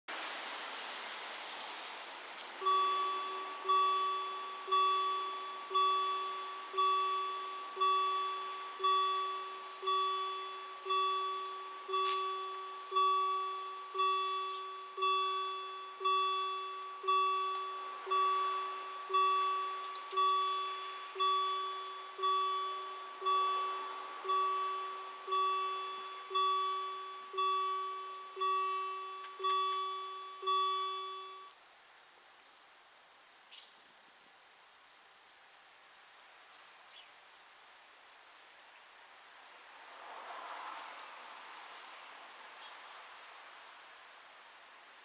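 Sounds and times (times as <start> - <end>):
level crossing bell ringing: 2.6 - 31.6.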